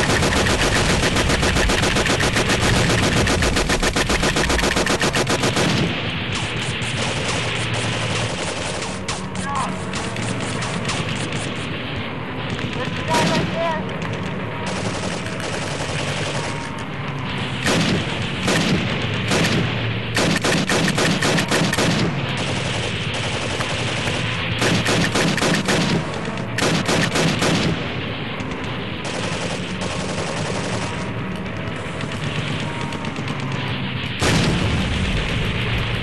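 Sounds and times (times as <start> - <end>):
paintball markers firing: 0.0 - 11.7, 12.5 - 27.8.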